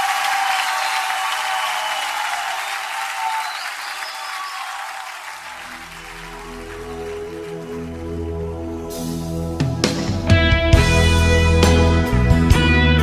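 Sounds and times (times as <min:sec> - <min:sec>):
audience applause: 0:00.0 - 0:08.8
low sustained musical notes: 0:05.6 - 0:09.8.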